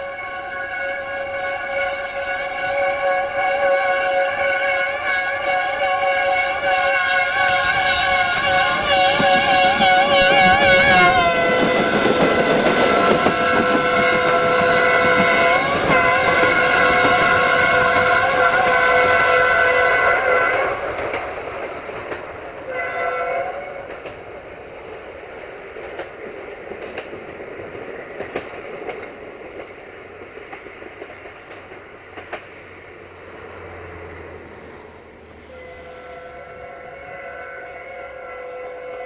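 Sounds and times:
locomotive horn: 0:00.0 - 0:21.2, 0:22.6 - 0:24.1, 0:35.4 - 0:39.0
train wheels clicking over rail joints: 0:01.0 - 0:34.7.

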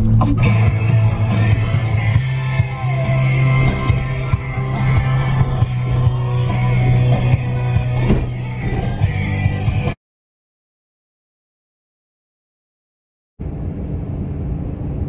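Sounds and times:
rock music with guitar: 0:00.0 - 0:10.0.

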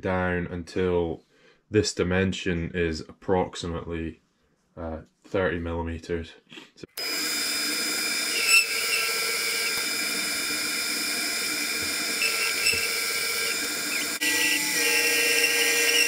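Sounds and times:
lathe motor and gear whine: 0:07.0 - 0:16.0
tool cutting metal: 0:07.0 - 0:16.0.

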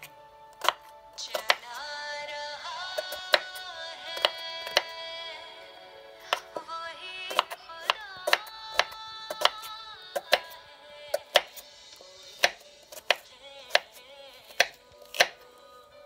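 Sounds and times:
knife slicing onion on wooden board: 0:00.0 - 0:01.7, 0:02.9 - 0:03.6, 0:04.2 - 0:04.9, 0:07.3 - 0:15.5
background music: 0:00.0 - 0:16.0.

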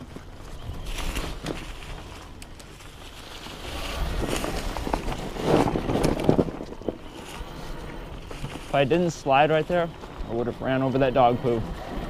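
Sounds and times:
bike tyres rumbling on snow: 0:00.0 - 0:12.0
wind buffeting microphone: 0:03.1 - 0:12.0.

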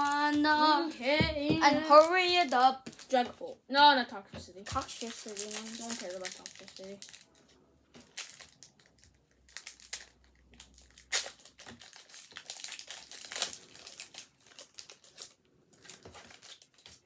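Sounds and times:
foil wrappers crinkling: 0:00.0 - 0:01.0, 0:04.6 - 0:17.0.

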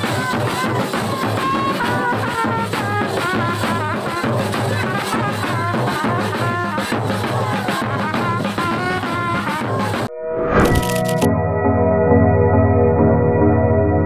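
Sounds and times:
drums steady beat: 0:00.0 - 0:10.1
horn-like melody: 0:00.0 - 0:10.2
festive band music: 0:00.0 - 0:11.2.

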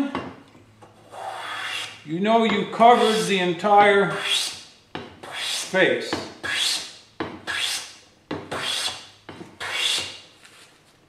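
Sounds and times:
hand plane scraping wood: 0:01.0 - 0:02.0, 0:02.6 - 0:03.4, 0:04.1 - 0:04.6, 0:05.2 - 0:06.9, 0:07.5 - 0:07.8, 0:08.5 - 0:09.0, 0:09.6 - 0:10.2.

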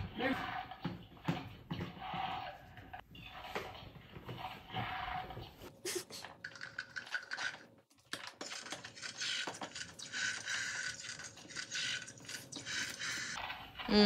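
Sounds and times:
toy horse crunching chewing sounds: 0:06.1 - 0:13.8.

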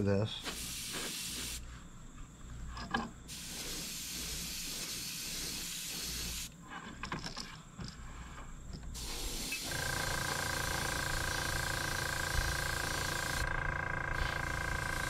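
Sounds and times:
airbrush air hiss: 0:00.4 - 0:01.8, 0:03.3 - 0:06.5, 0:08.9 - 0:13.5, 0:14.1 - 0:15.0.

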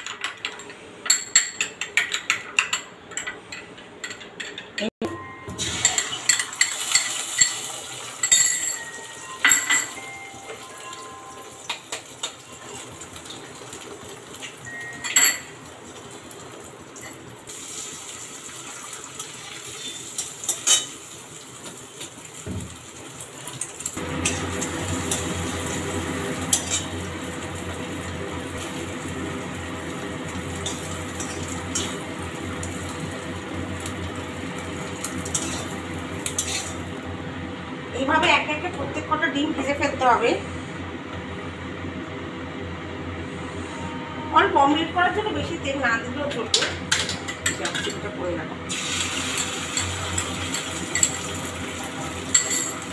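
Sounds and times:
metal spatula scraping iron pan: 0:35.3 - 0:36.8.

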